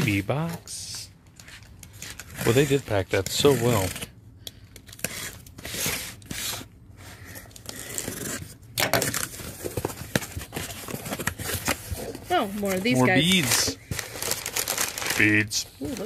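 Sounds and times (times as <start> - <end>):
tape and packing material tearing: 1.9 - 6.7, 7.4 - 12.2, 13.2 - 16.0.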